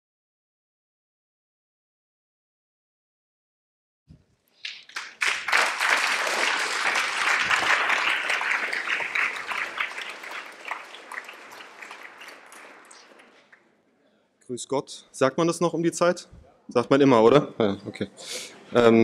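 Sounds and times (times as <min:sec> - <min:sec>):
audience applause: 0:04.6 - 0:13.6.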